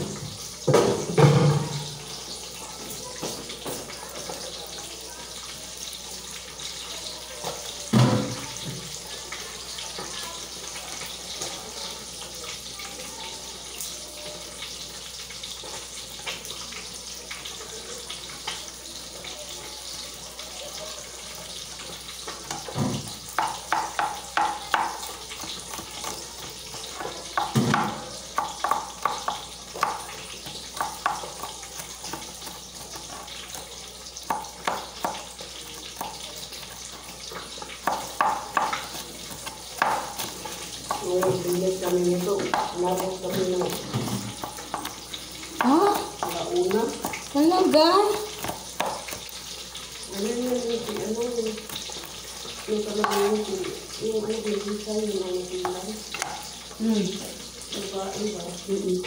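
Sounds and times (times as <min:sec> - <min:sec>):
knife chopping on cutting board: 0:22.5 - 0:26.2, 0:26.8 - 0:36.7, 0:37.4 - 0:49.5, 0:53.0 - 0:53.5.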